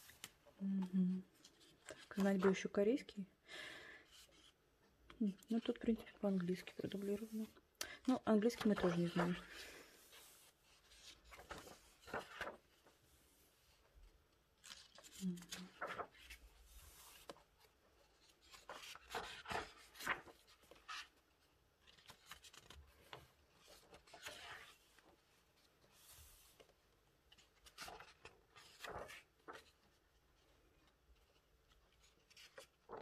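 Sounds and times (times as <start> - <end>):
pages turning rustling: 0.0 - 0.4, 8.3 - 33.0.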